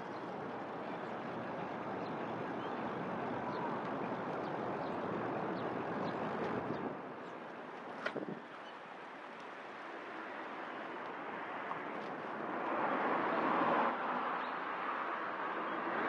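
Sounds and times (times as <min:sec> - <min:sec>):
car passing: 0:00.0 - 0:16.0
road traffic noise: 0:00.0 - 0:16.0.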